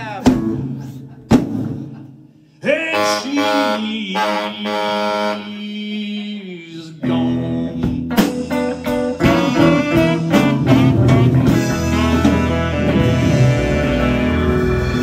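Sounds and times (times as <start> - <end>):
blues-rock band playing: 0.0 - 1.9, 7.0 - 15.0
bass guitar: 0.0 - 2.0, 7.0 - 15.0
drums: 0.0 - 3.0, 6.1 - 15.0
electric guitar: 7.0 - 15.0.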